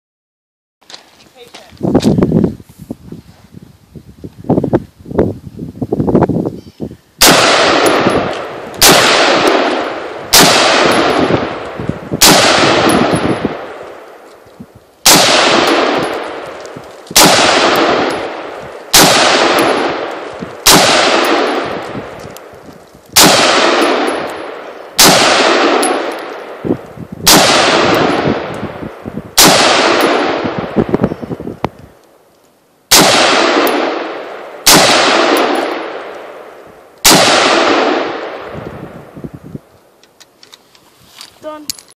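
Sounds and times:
rifle shots with echo: 0:07.2 - 0:14.3, 0:15.0 - 0:31.0, 0:32.9 - 0:39.2.

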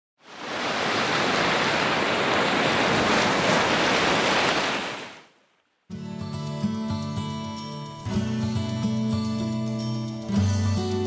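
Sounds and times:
ocean surf rushing: 0:00.2 - 0:05.6.

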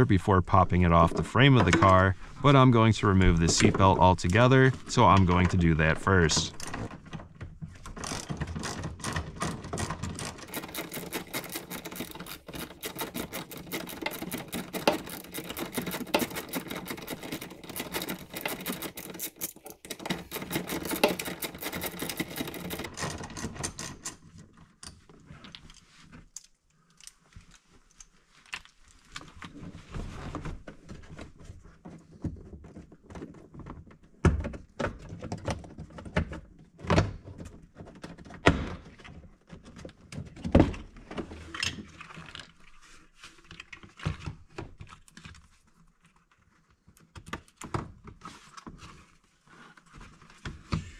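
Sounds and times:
hardware clicks and knocks: 0:01.1 - 0:02.2, 0:03.2 - 0:25.0.

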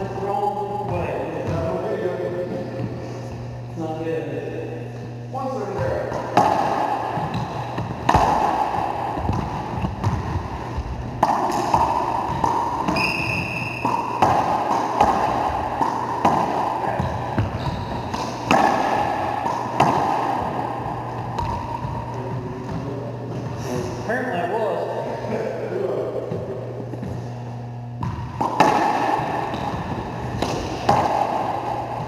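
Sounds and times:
ball hit by racquets echoing: 0:00.6 - 0:03.6, 0:05.6 - 0:23.5, 0:26.2 - 0:32.0
ball slapping off walls: 0:06.2 - 0:10.3, 0:11.2 - 0:22.0, 0:28.0 - 0:32.0.

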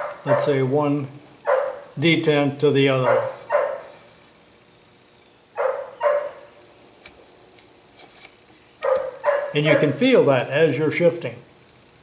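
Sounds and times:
dog barking: 0:00.0 - 0:00.6, 0:01.5 - 0:02.0, 0:03.0 - 0:03.9, 0:05.6 - 0:06.5, 0:08.8 - 0:10.0.

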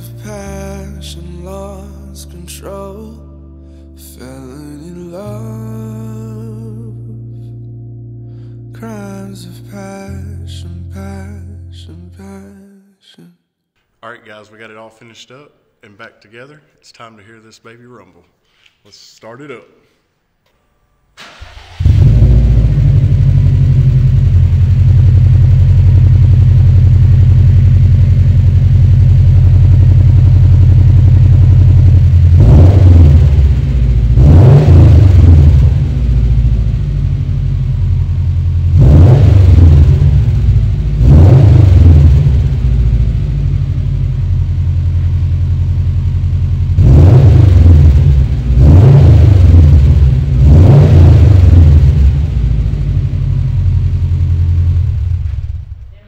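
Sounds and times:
car engine idling and revving: 0:21.2 - 0:55.9.

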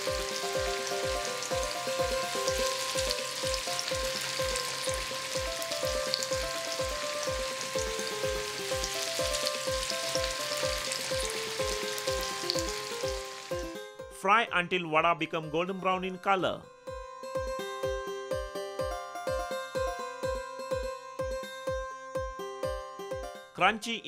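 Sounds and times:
food deep-frying in oil: 0:00.0 - 0:13.8
background music with beat: 0:00.0 - 0:24.0.

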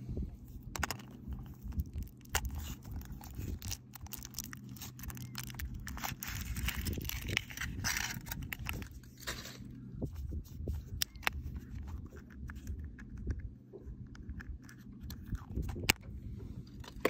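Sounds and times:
foil wrapper crinkling and tearing: 0:00.8 - 0:09.6.

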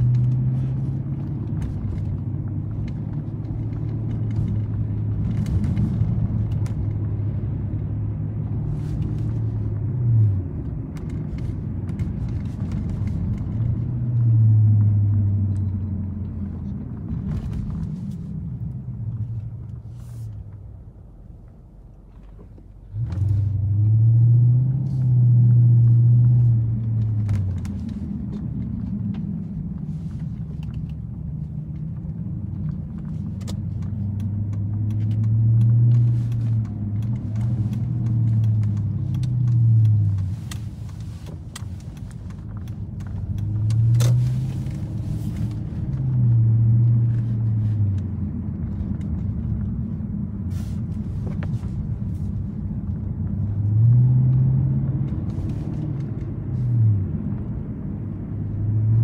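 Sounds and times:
car exhaust drone: 0:00.0 - 0:59.0
road rumble: 0:00.0 - 0:59.0.

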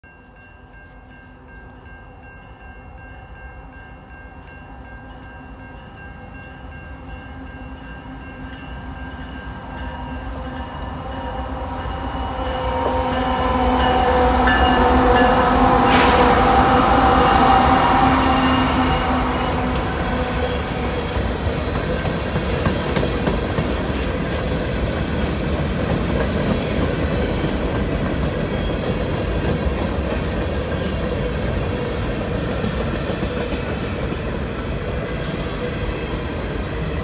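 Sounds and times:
crossing warning bell: 0:00.0 - 0:32.1
diesel locomotive: 0:00.0 - 0:37.0
locomotive horn: 0:11.4 - 0:20.9.

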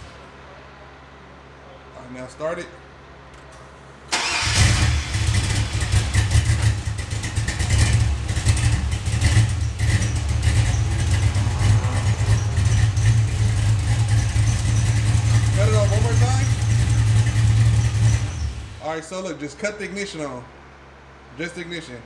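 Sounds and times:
car engine choppy idle: 0:04.2 - 0:18.8.

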